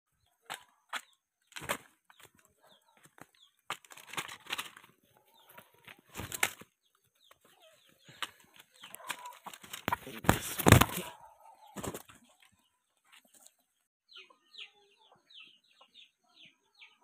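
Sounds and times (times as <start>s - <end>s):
chicken flapping wings: 3.0s - 6.7s, 8.2s - 11.2s, 11.8s - 12.2s.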